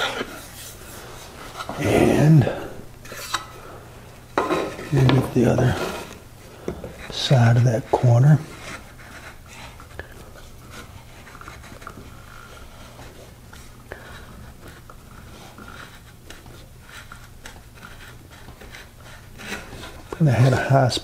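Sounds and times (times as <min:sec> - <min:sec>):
plane scraping wood: 0:00.0 - 0:03.4, 0:04.4 - 0:06.2
low steady hum: 0:00.0 - 0:21.0.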